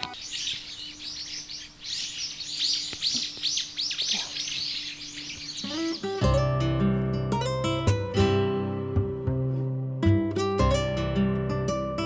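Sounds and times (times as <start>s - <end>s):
songbirds chirping: 0.0s - 7.1s.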